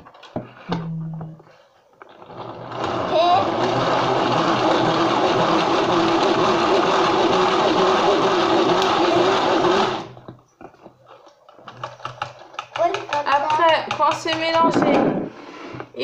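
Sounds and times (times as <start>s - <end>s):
hand-cranked mixer whirring: 2.1s - 10.3s, 11.2s - 14.8s.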